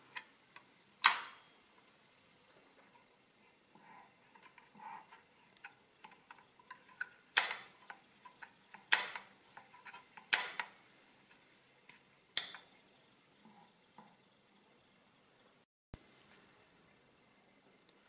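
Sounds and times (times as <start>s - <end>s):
sharp metallic clicks: 8.8s - 9.3s, 10.2s - 10.8s.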